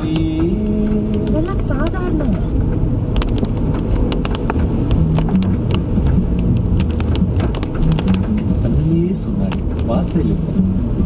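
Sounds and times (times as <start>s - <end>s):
raindrops tapping on windshield: 0.0s - 11.0s
tyres and engine rumbling: 0.0s - 11.0s.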